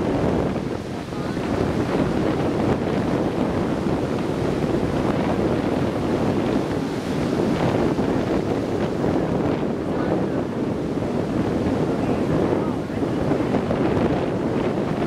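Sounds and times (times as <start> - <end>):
heavy surf breaking: 0.0 - 15.0
wind buffeting microphone: 0.0 - 15.0.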